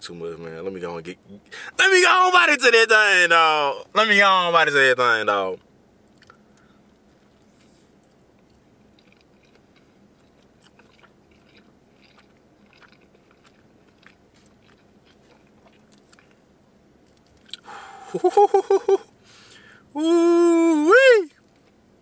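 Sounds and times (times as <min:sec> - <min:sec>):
low steady hum: 0:00.0 - 0:22.0
person chewing food: 0:06.1 - 0:16.4, 0:17.0 - 0:17.7.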